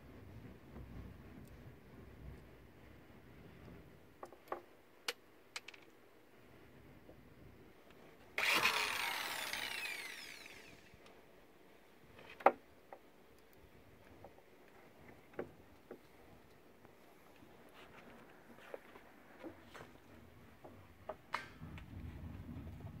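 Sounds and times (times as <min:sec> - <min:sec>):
electric drill whine: 0:08.4 - 0:11.0.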